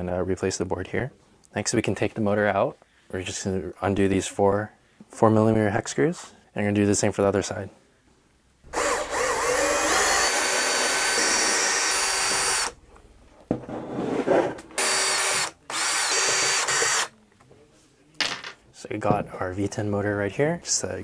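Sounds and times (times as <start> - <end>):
power drill whining: 8.7 - 12.8, 14.8 - 17.1.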